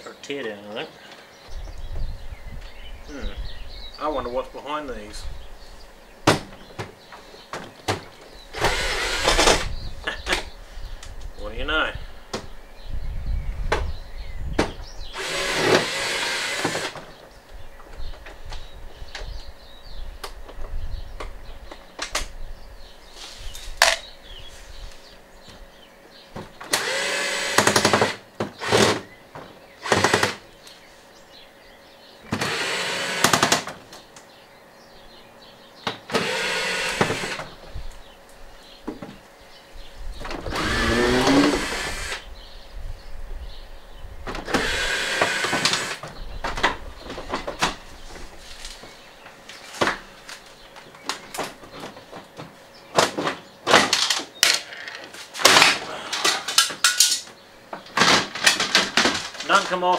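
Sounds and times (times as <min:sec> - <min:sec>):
cordless drill running: 0:08.5 - 0:09.6, 0:15.1 - 0:17.0, 0:26.7 - 0:29.0, 0:29.8 - 0:30.4, 0:32.4 - 0:33.6, 0:36.1 - 0:37.5, 0:40.5 - 0:42.2, 0:44.5 - 0:46.0.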